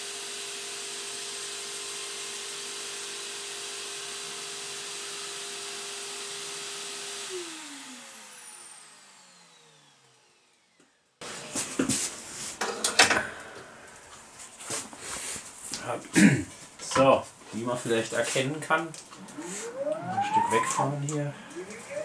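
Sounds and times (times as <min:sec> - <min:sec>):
vacuum running: 0:00.0 - 0:15.6, 0:19.0 - 0:22.0
router spindle whining: 0:00.9 - 0:11.5, 0:19.1 - 0:22.0
machines winding down: 0:19.2 - 0:22.0.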